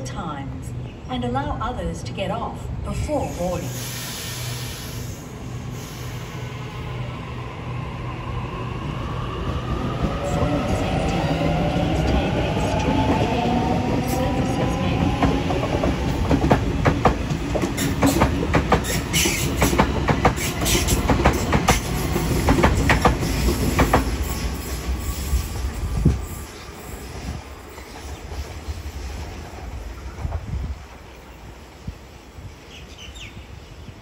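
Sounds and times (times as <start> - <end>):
train wheels clacking over rail joints: 15.1 - 24.2.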